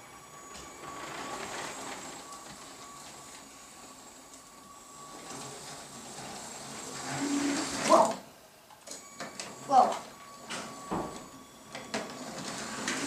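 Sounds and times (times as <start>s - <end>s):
toy train motor whirring: 5.0s - 8.2s.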